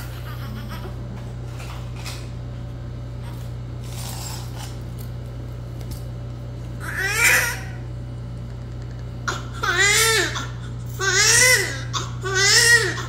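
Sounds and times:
steady low hum: 0.0s - 13.0s
newborn baby crying: 9.3s - 13.0s.

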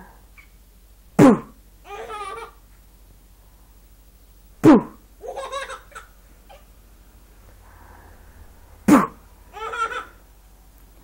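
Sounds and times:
baby giggling: 1.9s - 2.6s, 4.6s - 6.7s, 8.9s - 10.2s.

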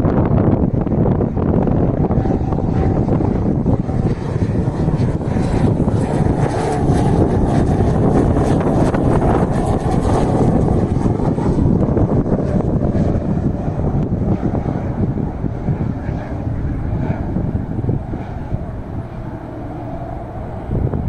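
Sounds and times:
propeller plane engine drone: 0.0s - 21.0s
wind buffeting microphone: 0.0s - 21.0s.

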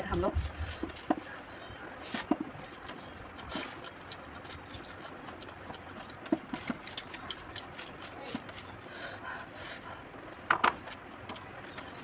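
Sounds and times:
wet chewing and lip smacks: 2.5s - 8.8s.

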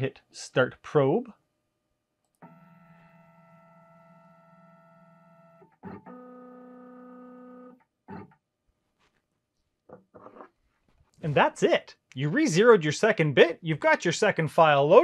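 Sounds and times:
click: 2.2s - 2.5s.

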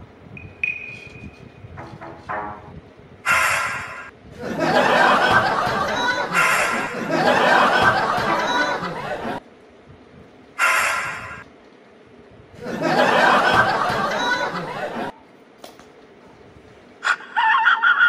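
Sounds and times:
laughter: 4.3s - 9.4s, 12.6s - 15.2s, 17.0s - 18.0s.

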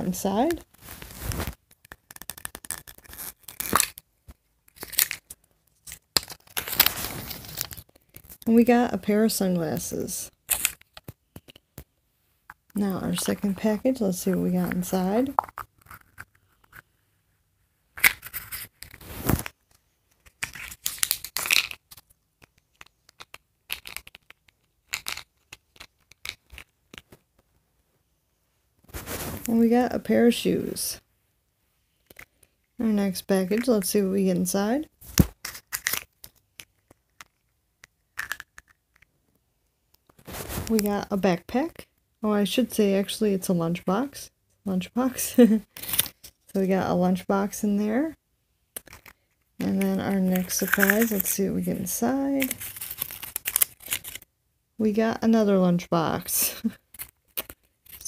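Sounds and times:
packet crinkling and tearing: 0.7s - 4.1s, 4.7s - 8.5s, 18.0s - 27.0s, 35.2s - 38.8s, 45.7s - 46.4s, 50.3s - 51.4s, 52.4s - 54.3s.

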